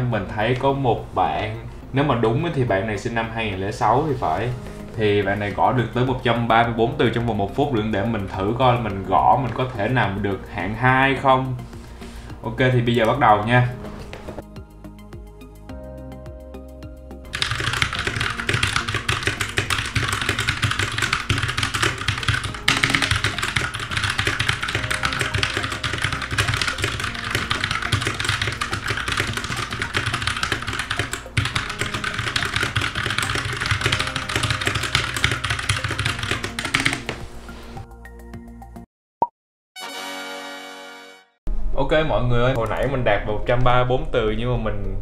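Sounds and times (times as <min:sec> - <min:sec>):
fast typing on keyboard: 0:17.3 - 0:37.2.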